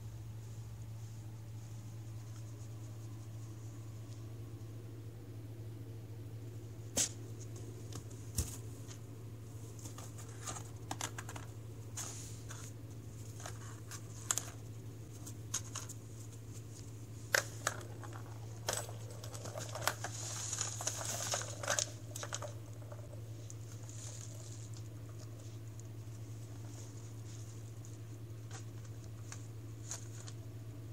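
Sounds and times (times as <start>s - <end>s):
steady low hum: 0.0s - 30.9s
paper crinkling and rustling: 9.6s - 30.5s.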